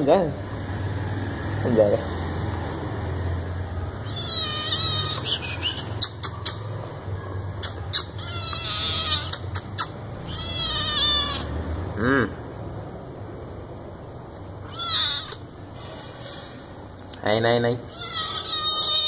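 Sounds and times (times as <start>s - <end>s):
kitten meowing: 4.0s - 6.6s, 7.6s - 11.5s, 14.6s - 15.5s, 17.9s - 19.0s.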